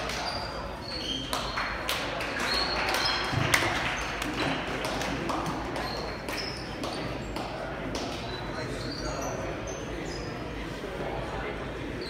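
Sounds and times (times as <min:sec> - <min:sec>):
indistinct chatter: 0:00.0 - 0:12.0
sneakers squeaking on court: 0:05.8 - 0:07.4.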